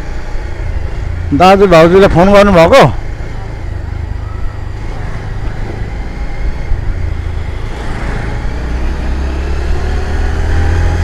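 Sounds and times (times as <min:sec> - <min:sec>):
motorbike engine and road noise: 0:00.0 - 0:11.0
scooters passing: 0:02.4 - 0:11.0.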